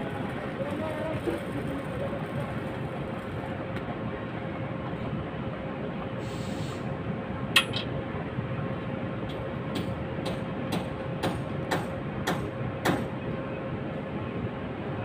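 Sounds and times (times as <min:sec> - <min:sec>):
brief hiss: 0:06.2 - 0:06.9.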